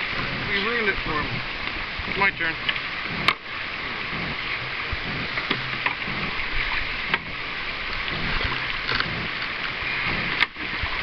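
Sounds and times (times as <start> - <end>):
paddle strokes: 0.0 - 11.0
water rushing over stones: 0.0 - 11.0.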